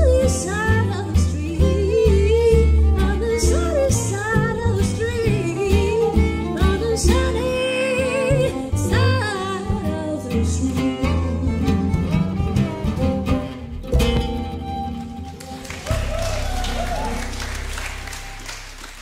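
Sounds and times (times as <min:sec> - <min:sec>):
woman singing: 0:00.0 - 0:11.9
gypsy swing on harp fiddle guitar: 0:00.0 - 0:18.4.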